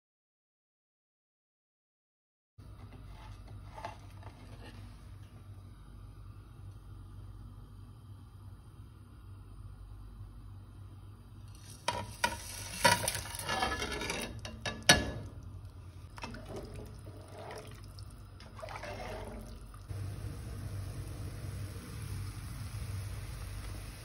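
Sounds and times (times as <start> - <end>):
steady low hum: 2.6 - 11.7, 19.2 - 24.0
water pouring into a pot: 16.1 - 24.0.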